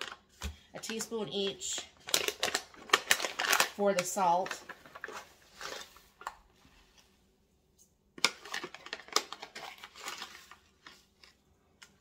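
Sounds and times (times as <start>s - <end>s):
paper crinkling and rustling: 0.0s - 7.1s, 8.2s - 11.5s
paper crackling: 0.9s - 6.0s.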